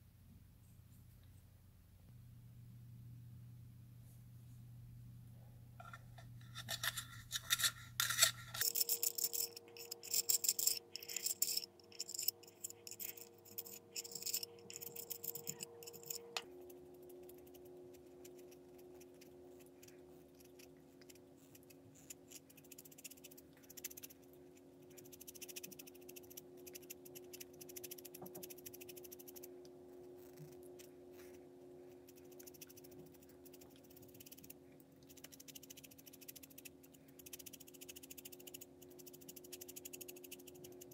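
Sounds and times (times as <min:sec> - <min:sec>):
faint steady hum: 0:00.0 - 0:40.9
pencil sharpener rasping: 0:05.8 - 0:16.4.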